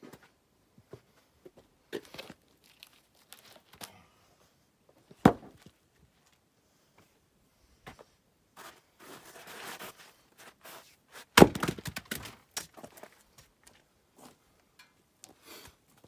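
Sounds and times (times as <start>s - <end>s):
axe splitting wood: 5.2s - 5.6s, 11.4s - 12.8s.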